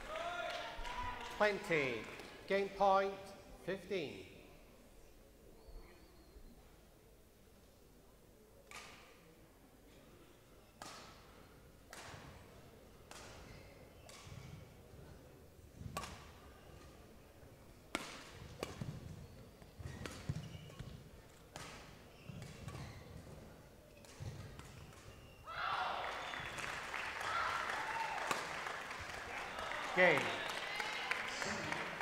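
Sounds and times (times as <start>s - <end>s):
crowd applause and cheering: 0.0s - 1.6s, 25.6s - 32.0s
rackets striking shuttlecock: 13.0s - 14.6s, 15.9s - 16.4s, 17.9s - 19.2s, 19.8s - 23.3s, 23.9s - 25.3s.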